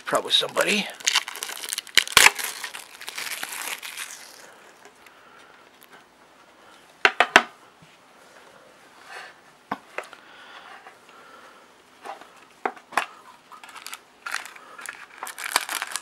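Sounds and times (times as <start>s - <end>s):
plastic wrapper crinkling: 0.1s - 5.0s, 13.0s - 16.0s.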